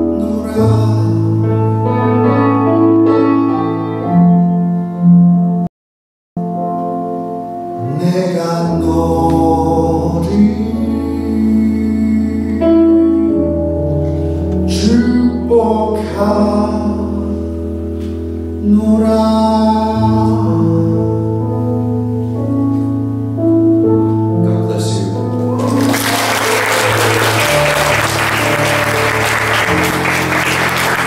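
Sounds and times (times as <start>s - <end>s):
man singing into microphone: 0.0s - 2.1s, 7.8s - 13.6s, 14.6s - 17.6s, 18.6s - 21.5s
instrumental accompaniment: 21.3s - 31.0s.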